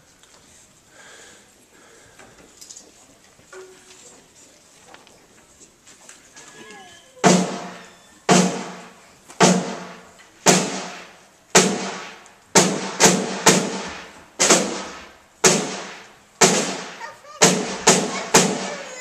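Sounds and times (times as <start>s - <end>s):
snare drum strokes: 7.2s - 19.0s.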